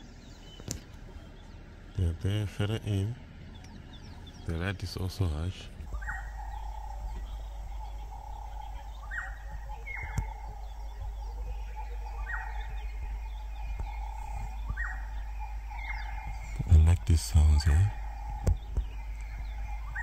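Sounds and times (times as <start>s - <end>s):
background bird chorus: 0.0s - 20.0s
low steady hum: 0.0s - 20.0s
bird call dropping in pitch: 5.9s - 20.0s.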